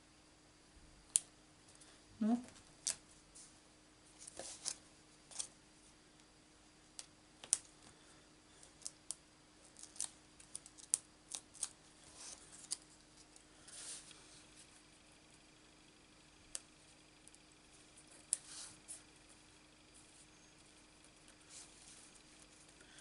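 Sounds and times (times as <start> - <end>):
faint steady hum: 0.0 - 23.0
small irregular clicks: 1.1 - 1.3, 6.9 - 11.8.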